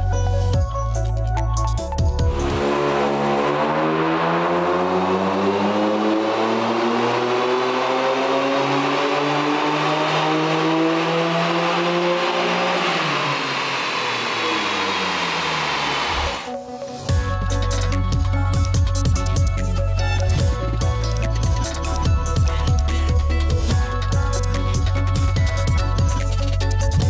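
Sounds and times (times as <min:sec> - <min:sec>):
car engine revving on dyno: 0:02.3 - 0:16.5.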